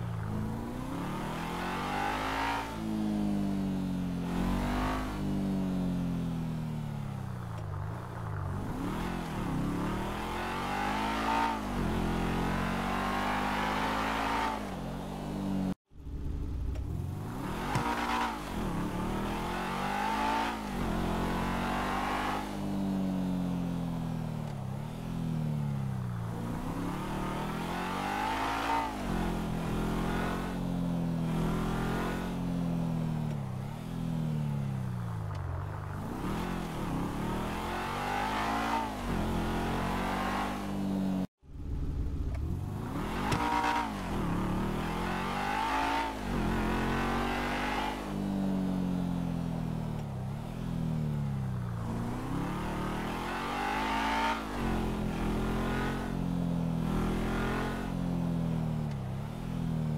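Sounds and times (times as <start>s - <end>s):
sports car engine revving: 35.3s - 48.4s, 51.7s - 56.2s.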